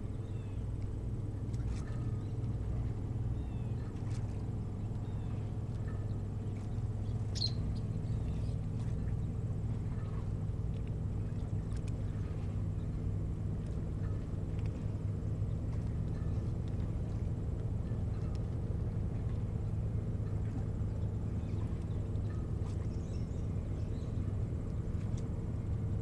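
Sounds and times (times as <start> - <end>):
low engine drone: 0.0 - 26.0
faint bird chirps: 7.0 - 8.6.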